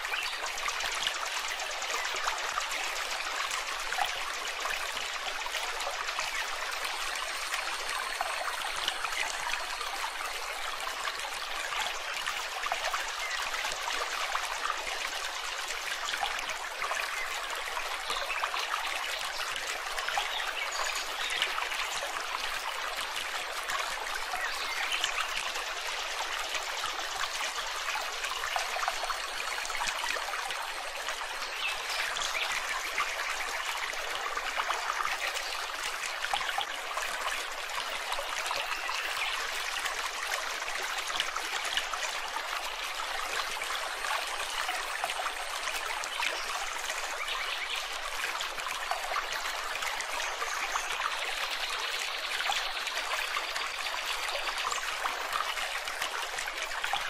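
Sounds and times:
stream trickling over rocks: 0:00.0 - 0:57.0.

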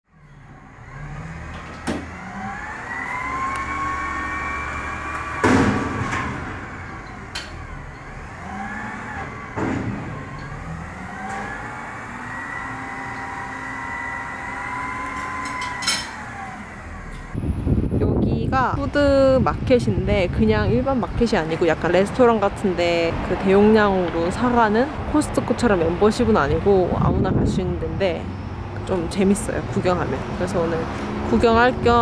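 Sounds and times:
truck engine and hydraulics whining: 0:00.1 - 0:32.0
metal bangs and clanks: 0:05.4 - 0:08.2, 0:09.3 - 0:10.7.

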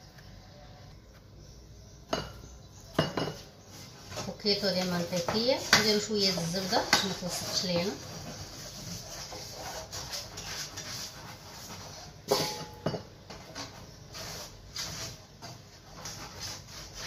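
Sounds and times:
hands rubbing metal cake pan: 0:03.3 - 0:12.6, 0:13.3 - 0:17.0.

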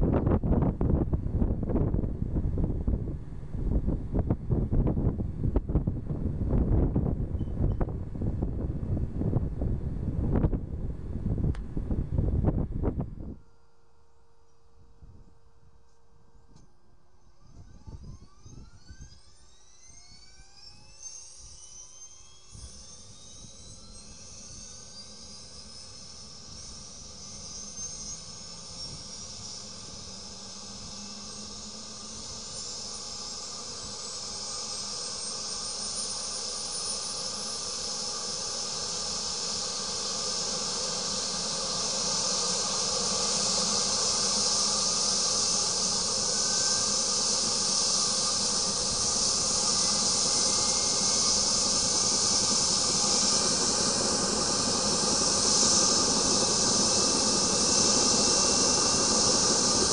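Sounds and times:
helicopter turbine whine: 0:00.0 - 0:59.9
hiss: 0:18.2 - 0:59.9.

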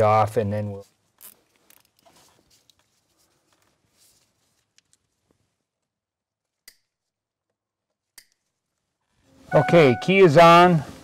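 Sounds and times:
zip tie rustling and ticking: 0:00.9 - 0:08.9.

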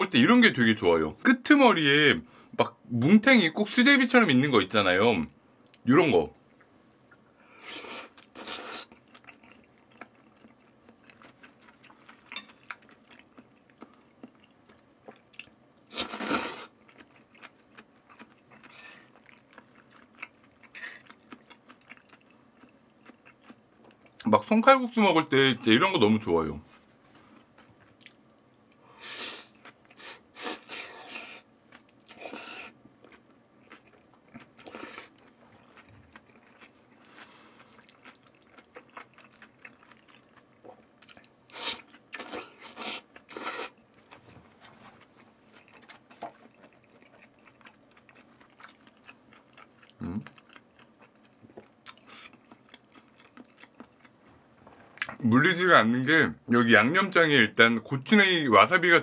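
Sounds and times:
wet slurps and chewing: 0:29.0 - 0:43.8.

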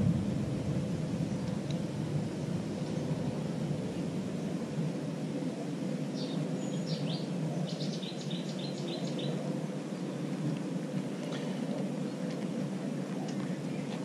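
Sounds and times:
low rumbling background noise: 0:00.0 - 0:14.0
small birds chirping: 0:06.0 - 0:14.0.

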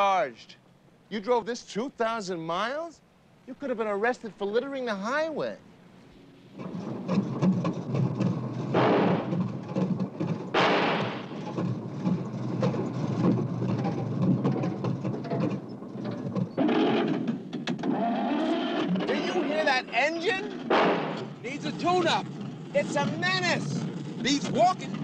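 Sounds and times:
engine rushing bursts: 0:06.2 - 0:25.0
car engine running rough: 0:06.6 - 0:18.0.

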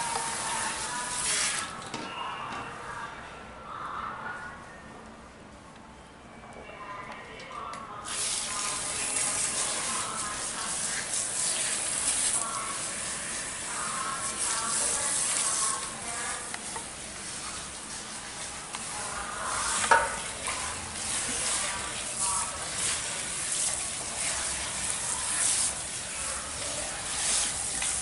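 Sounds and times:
water spraying hiss: 0:00.0 - 0:01.7, 0:08.1 - 0:28.0.

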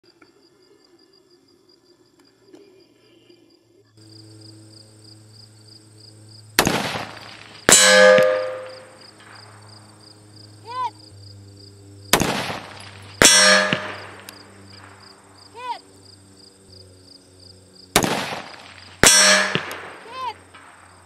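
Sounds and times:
insects buzzing faintly: 0:00.0 - 0:21.0
rifle shots: 0:06.6 - 0:09.6, 0:12.1 - 0:15.2, 0:17.9 - 0:21.0
bullet clanging on steel target: 0:07.7 - 0:09.4, 0:12.7 - 0:14.4, 0:19.0 - 0:20.0.

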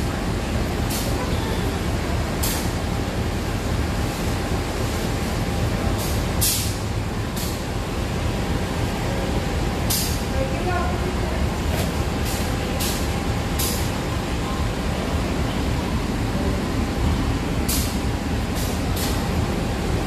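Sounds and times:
diesel locomotive rumbling: 0:00.0 - 0:20.0
short air hisses: 0:06.0 - 0:06.8.

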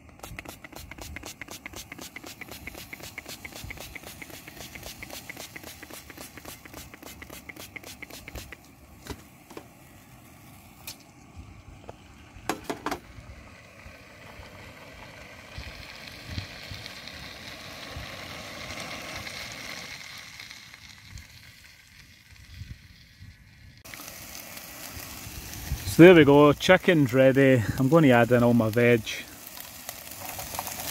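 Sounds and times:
chicken sizzling in a pan: 0:00.0 - 0:30.9.

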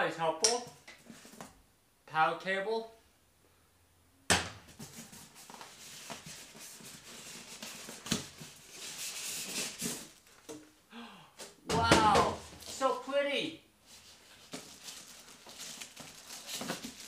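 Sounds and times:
foam scraping against cardboard: 0:04.8 - 0:10.2.

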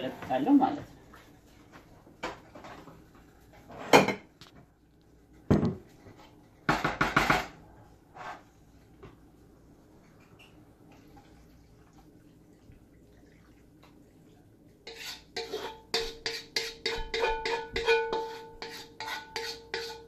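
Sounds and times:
wooden spoon knocking in a wok: 0:15.4 - 0:20.0.

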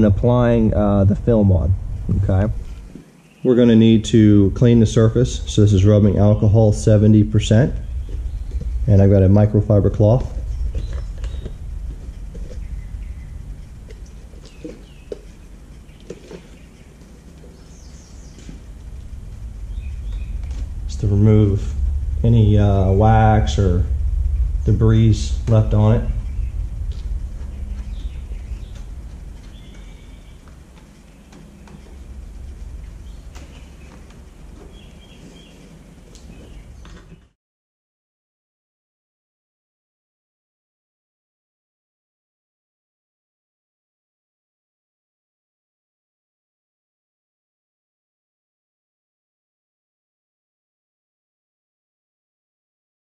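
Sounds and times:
low steady hum: 0:00.0 - 0:37.4
steady low rumble: 0:00.0 - 0:37.4.

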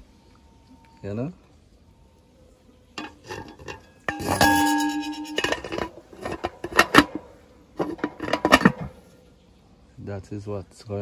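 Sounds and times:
ringing metallic tone: 0:03.0 - 0:08.9
pot lid clinking and scraping: 0:03.0 - 0:09.0.

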